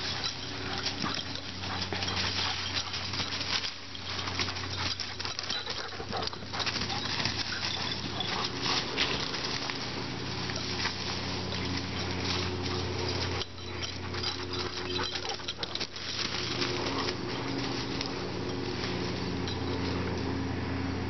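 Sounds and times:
paws and footsteps on dry leaves: 0.0s - 20.4s
low hum: 0.0s - 21.0s.

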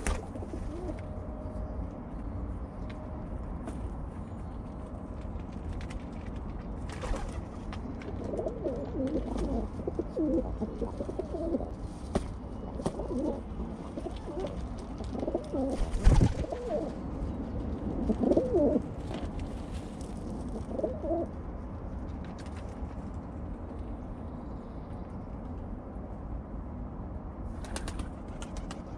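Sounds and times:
wings fluttering: 0.0s - 1.1s, 5.1s - 17.0s, 27.6s - 28.9s
pigeons cooing: 0.0s - 1.2s, 7.1s - 12.0s, 12.6s - 17.1s, 17.9s - 18.9s, 20.4s - 21.4s.

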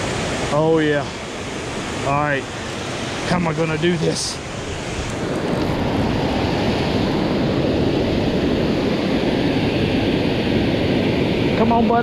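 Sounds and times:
river water rushing over spillway: 0.0s - 12.0s.

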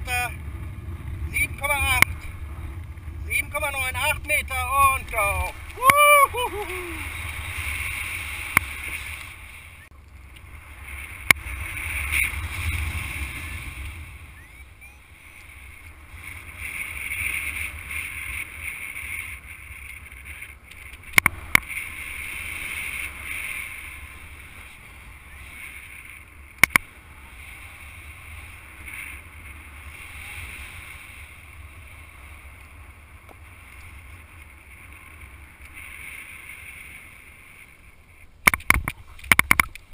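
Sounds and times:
wind rushing over microphone: 0.0s - 37.5s
sharp clicks: 26.6s - 26.9s.

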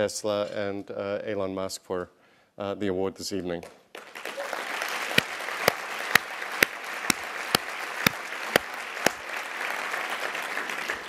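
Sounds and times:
close hand claps: 3.6s - 11.0s
audience applauding: 3.9s - 11.0s.

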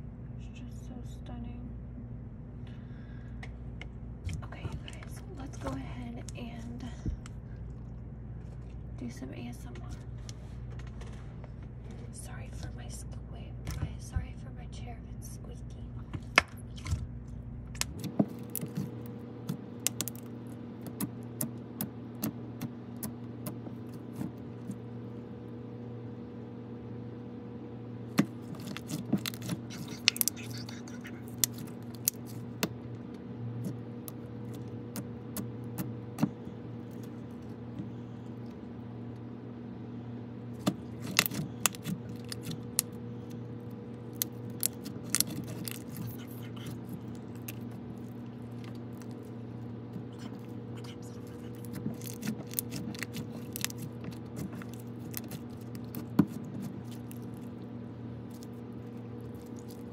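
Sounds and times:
low hum: 0.0s - 59.9s
slime clicking and popping: 19.8s - 21.5s, 28.2s - 32.7s, 44.1s - 46.0s.

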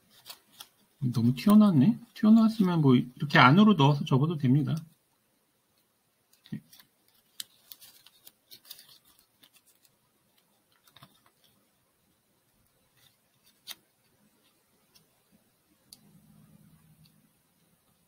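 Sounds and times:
paper crinkling as folded: 0.0s - 2.7s, 6.3s - 11.8s, 12.6s - 15.1s.

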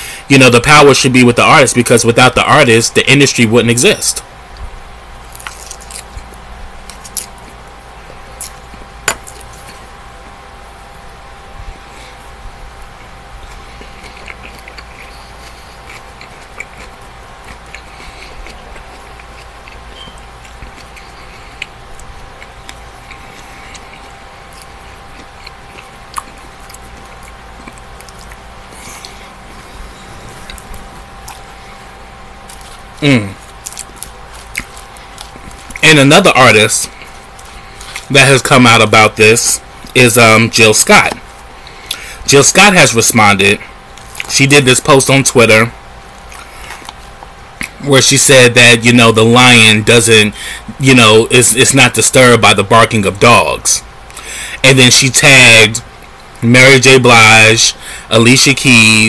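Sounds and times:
faint steady hum: 0.0s - 59.0s
person chewing salad: 4.5s - 38.7s, 41.0s - 42.3s, 43.7s - 44.3s, 46.0s - 47.9s.

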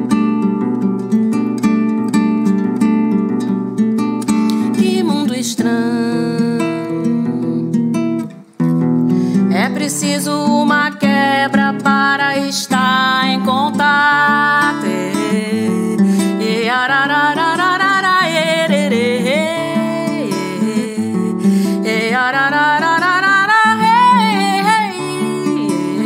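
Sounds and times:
acoustic guitar: 0.0s - 26.0s
woman singing: 4.5s - 8.0s, 9.3s - 26.0s.

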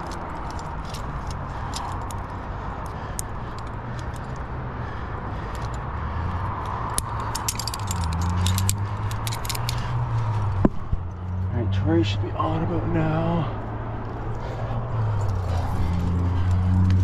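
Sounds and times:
metal carabiners clinking: 0.0s - 4.5s, 5.4s - 11.5s
steady low rumble: 0.0s - 17.0s.

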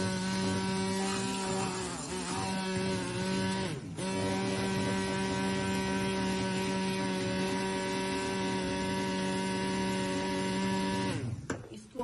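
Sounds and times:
hand blender whirring in milk: 0.0s - 11.5s.

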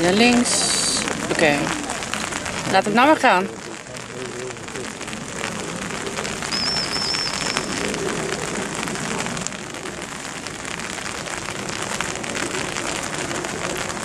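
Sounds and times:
rain falling: 0.0s - 14.0s
high warbling whistle: 6.5s - 8.3s.

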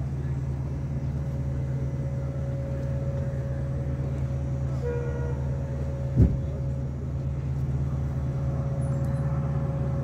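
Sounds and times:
diesel locomotive idling: 0.0s - 10.0s
weak steady hum: 0.0s - 10.0s
loud thump: 6.2s - 6.5s.

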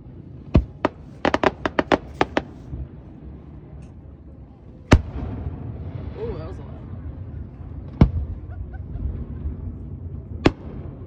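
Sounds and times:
fireworks shells bursting: 0.6s - 2.7s.

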